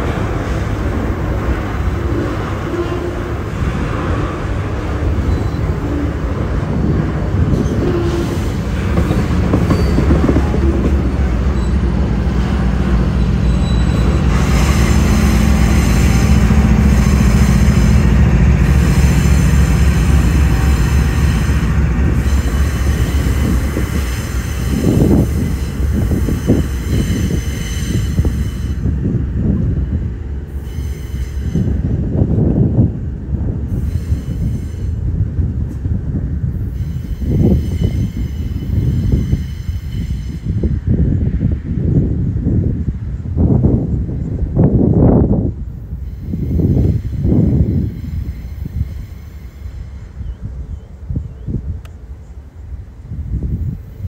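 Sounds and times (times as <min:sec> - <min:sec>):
freight train rumbling past: 0:00.0 - 0:54.0
high wheel squeal: 0:05.1 - 0:06.2, 0:09.5 - 0:10.9, 0:11.5 - 0:12.0, 0:13.1 - 0:18.1, 0:18.7 - 0:28.9, 0:30.6 - 0:31.8, 0:33.8 - 0:35.0, 0:36.7 - 0:40.8.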